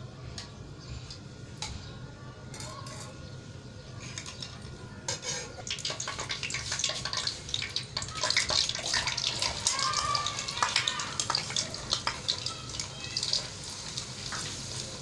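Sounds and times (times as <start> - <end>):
oil crackling and sizzling in wok: 4.1 - 15.0.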